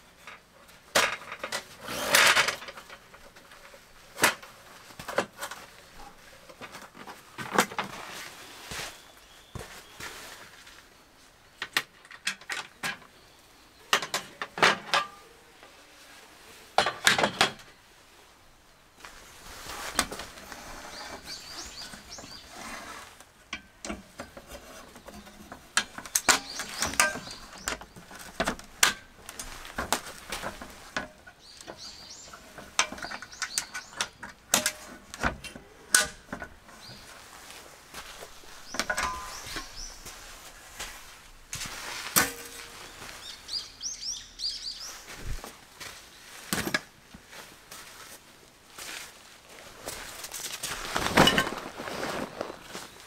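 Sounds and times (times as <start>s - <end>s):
rustling: 0.0s - 11.4s, 17.6s - 44.0s, 44.6s - 53.0s
faint birds chirping: 2.8s - 14.6s, 17.6s - 34.9s, 35.5s - 46.5s.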